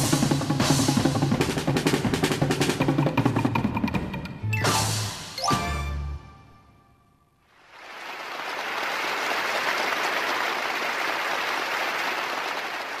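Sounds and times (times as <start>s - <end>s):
audience applauding: 7.5s - 13.0s.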